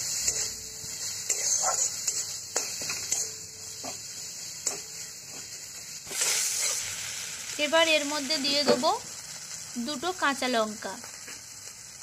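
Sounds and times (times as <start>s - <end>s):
spatula scraping pan: 0.0s - 6.9s
food sizzling in hot oil: 0.0s - 12.0s.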